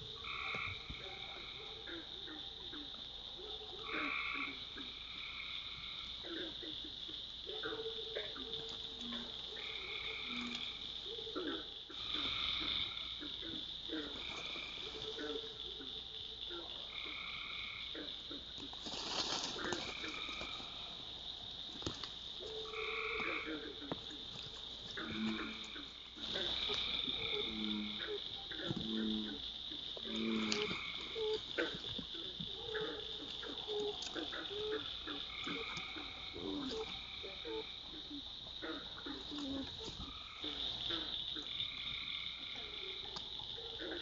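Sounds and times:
frog trills: 0:00.0 - 0:03.1, 0:03.8 - 0:18.8, 0:19.4 - 0:44.0
high-pitched frog drone: 0:00.0 - 0:03.1, 0:03.8 - 0:18.7, 0:19.6 - 0:44.0
low croaks: 0:03.8 - 0:44.0.

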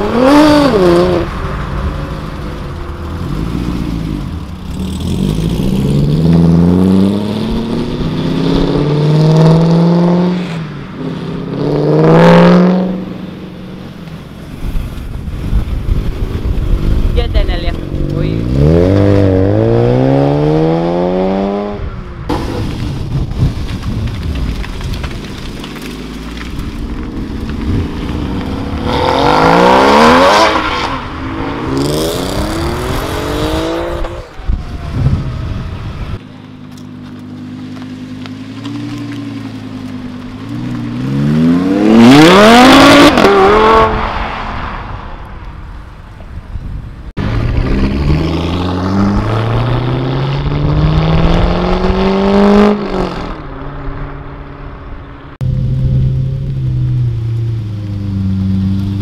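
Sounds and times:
car engine idling and revving: 0:00.0 - 0:59.0
sports car engine accelerating: 0:17.7 - 0:21.8, 0:47.2 - 0:59.0.

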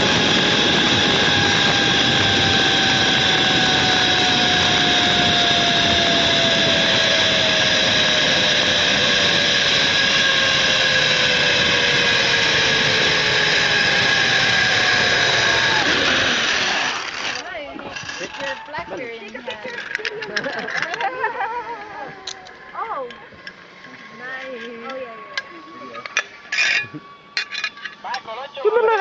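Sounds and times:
zip-line pulleys rushing hiss: 0:00.0 - 0:18.6.

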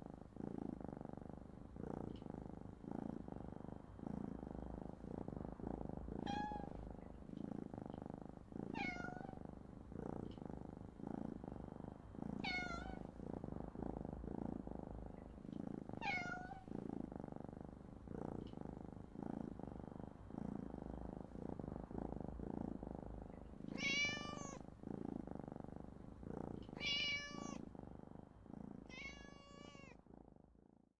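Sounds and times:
low purr: 0:00.0 - 0:31.0
kittens mewing: 0:23.8 - 0:24.6, 0:26.8 - 0:27.6, 0:28.9 - 0:29.9.

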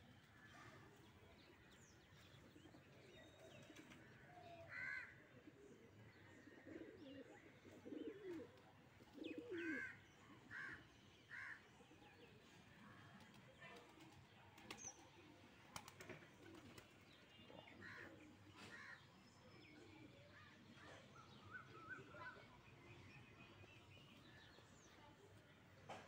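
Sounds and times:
pigeons cooing: 0:05.4 - 0:10.0.

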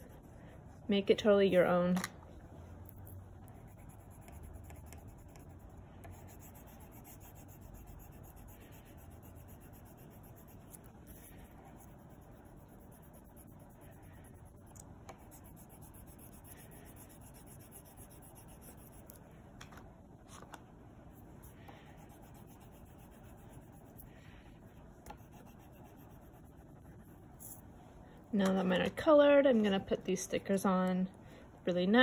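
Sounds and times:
crayon scratching on paper: 0:03.5 - 0:19.2, 0:21.4 - 0:24.1, 0:25.1 - 0:27.6.

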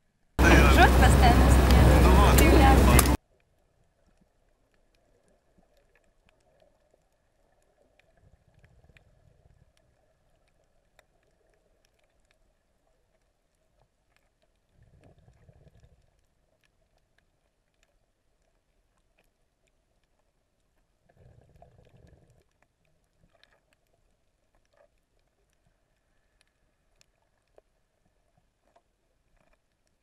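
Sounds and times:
brief low rumbles: 0:00.4 - 0:03.2
underwater clicks and crackles: 0:01.6 - 0:30.0.

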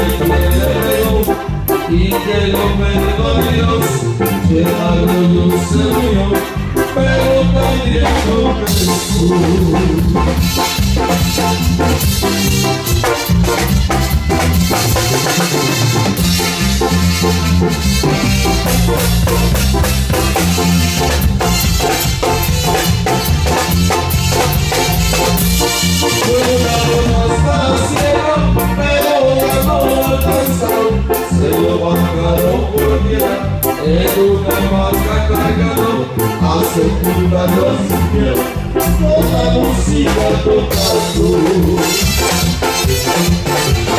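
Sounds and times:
latin dance band over speakers: 0:00.0 - 0:43.9
moving bass line: 0:00.0 - 0:43.9
steady drum beat: 0:07.7 - 0:30.6, 0:39.0 - 0:43.9.

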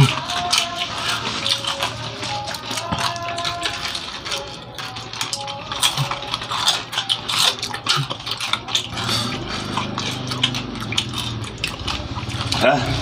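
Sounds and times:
crunching of crispy snack: 0:00.0 - 0:13.0.

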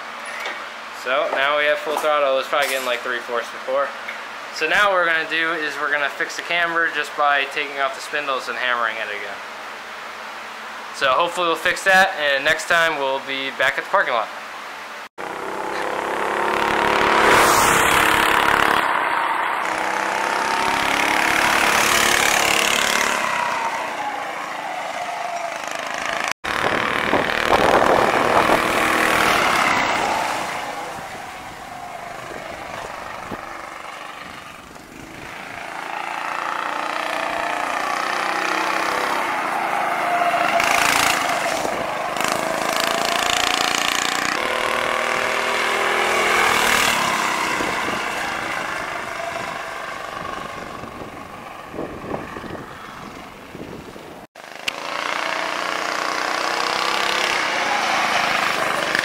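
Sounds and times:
go-kart engine revving: 0:15.2 - 0:59.0.

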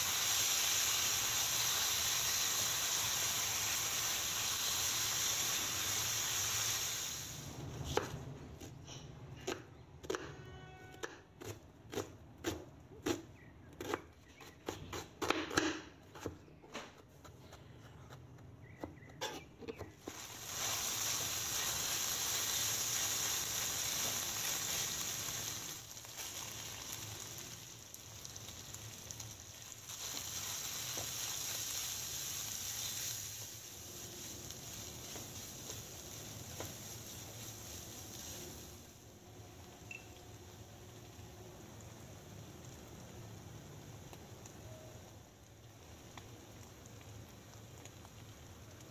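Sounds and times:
chicken sizzling in oil: 0:00.0 - 0:07.6, 0:20.0 - 0:48.9.

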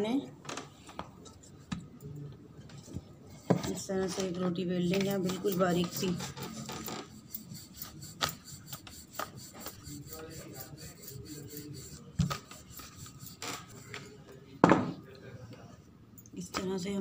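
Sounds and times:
rolling pin rolling dough: 0:04.2 - 0:14.2.

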